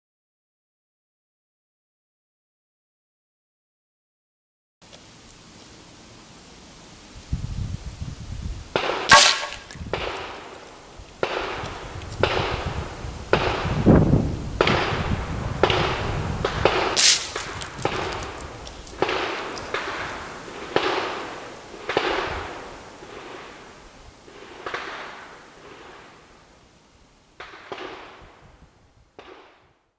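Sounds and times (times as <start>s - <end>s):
rifle shots: 8.8s - 10.3s, 16.7s - 18.1s.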